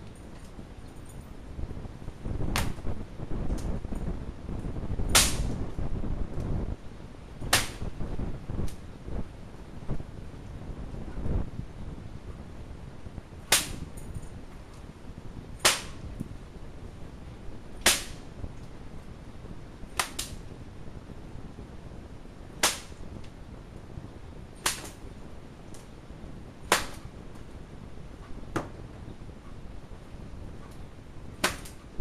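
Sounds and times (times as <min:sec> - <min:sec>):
whip cracking: 0:02.5 - 0:02.8, 0:05.1 - 0:05.6, 0:07.5 - 0:07.9, 0:13.5 - 0:13.9, 0:15.6 - 0:16.1, 0:17.8 - 0:18.3, 0:20.0 - 0:20.5, 0:22.6 - 0:23.0, 0:24.6 - 0:25.0, 0:26.7 - 0:27.1, 0:31.4 - 0:31.8.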